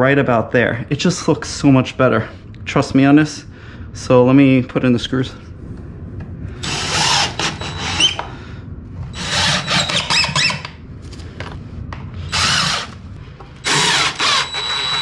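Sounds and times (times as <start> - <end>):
cordless driver driving screws: 12.3 - 13.0, 13.6 - 15.0.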